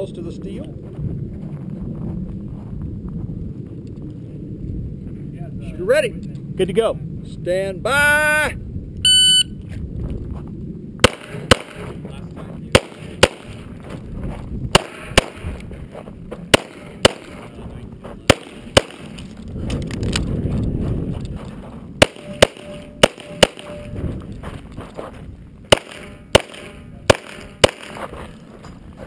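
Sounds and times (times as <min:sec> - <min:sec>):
pistol shots: 0:11.0 - 0:12.0, 0:12.7 - 0:13.6, 0:14.7 - 0:15.6, 0:16.5 - 0:17.5, 0:18.2 - 0:19.2, 0:22.0 - 0:23.9, 0:25.7 - 0:28.1.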